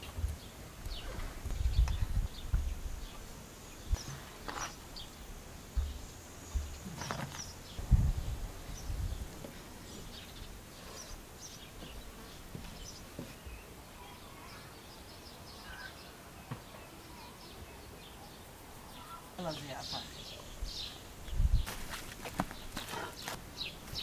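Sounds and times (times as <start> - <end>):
birds chirping faintly: 0.0 - 24.0
dull low thumps: 1.2 - 3.0, 5.7 - 6.9, 7.8 - 9.4.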